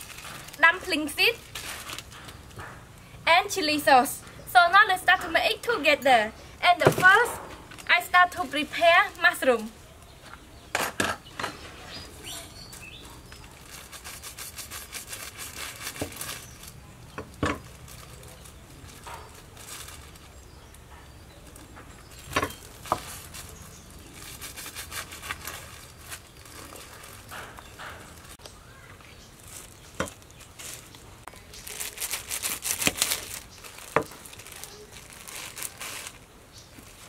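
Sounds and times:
plastic packaging crinkling: 0.0s - 2.6s, 12.2s - 20.7s, 22.0s - 37.0s.

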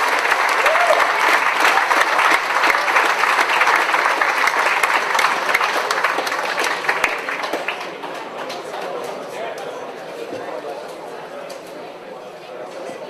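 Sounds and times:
crowd applauding: 0.0s - 9.4s.

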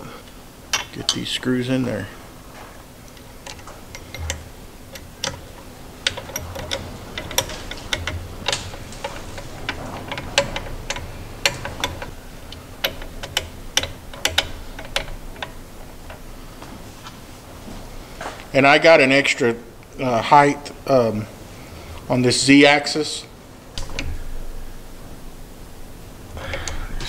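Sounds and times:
metallic clicks of screws turning: 3.1s - 16.2s, 26.5s - 26.8s.

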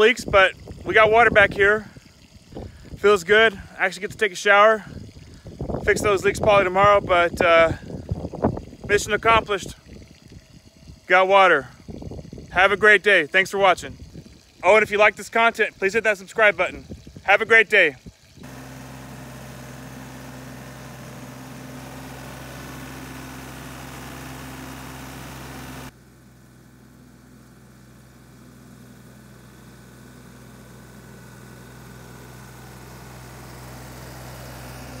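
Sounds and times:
trencher engine running: 18.4s - 35.0s.

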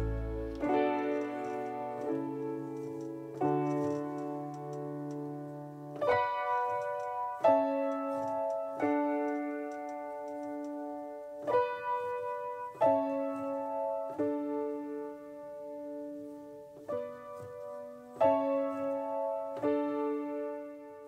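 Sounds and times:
slow keyboard chords: 0.0s - 21.0s.

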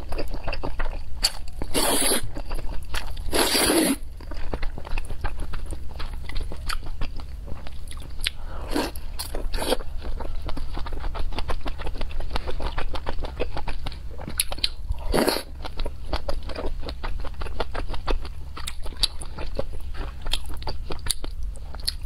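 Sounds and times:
wet chewing and mouth smacks: 0.0s - 22.0s
person slurping noodles: 1.7s - 2.3s, 3.3s - 4.0s, 15.0s - 15.5s.

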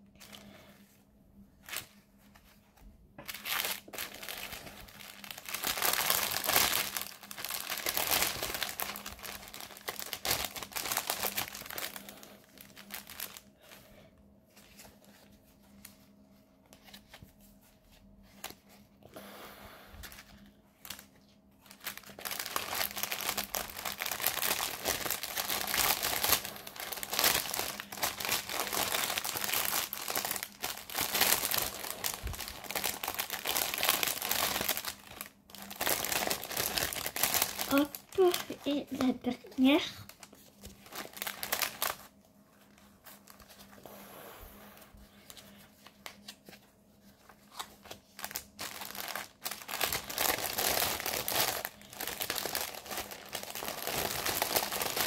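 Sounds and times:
packaging crinkling: 3.2s - 13.6s, 20.0s - 43.7s, 45.2s - 55.0s.

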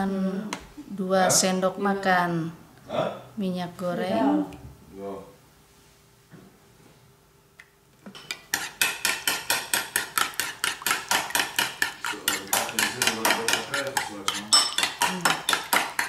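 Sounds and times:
metal spoon clinking in bowl: 8.2s - 16.0s.

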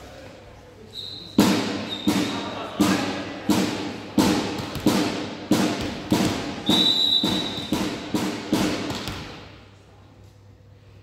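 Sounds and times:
ball bouncing on hall floor: 1.4s - 9.7s
referee's whistle blast: 6.6s - 7.8s.

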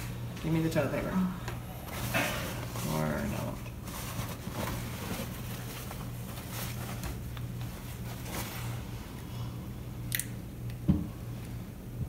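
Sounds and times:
steady low hum: 0.0s - 12.0s
faint rubbing and handling: 1.8s - 9.1s.

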